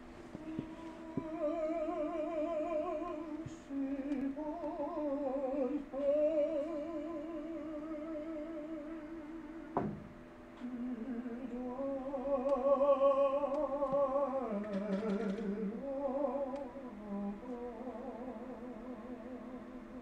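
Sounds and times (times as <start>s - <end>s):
person singing with vibrato: 0.0s - 9.8s, 10.6s - 20.0s.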